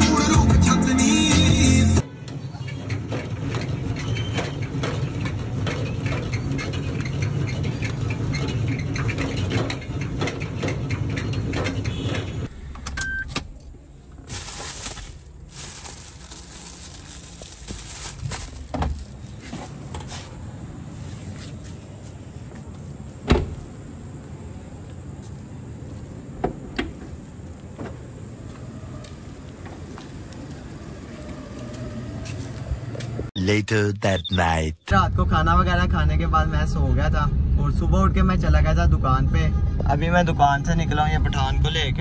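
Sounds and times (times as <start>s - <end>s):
car road rumble: 2.7s - 33.3s
handling sounds: 13.6s - 20.4s.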